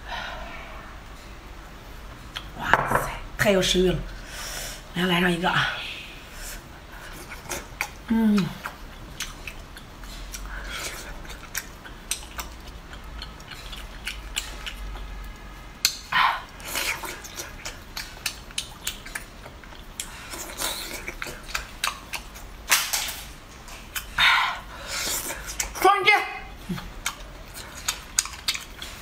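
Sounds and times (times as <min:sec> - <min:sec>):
lip smacks and chewing: 0:07.2 - 0:15.1, 0:15.8 - 0:24.2, 0:24.9 - 0:25.8, 0:26.6 - 0:29.0.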